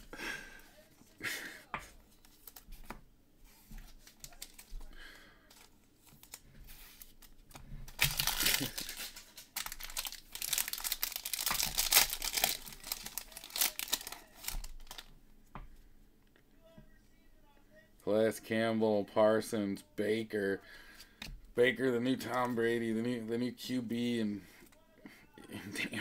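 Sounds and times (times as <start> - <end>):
foil wrapper tearing and rustling: 3.9 - 4.8, 5.5 - 15.1.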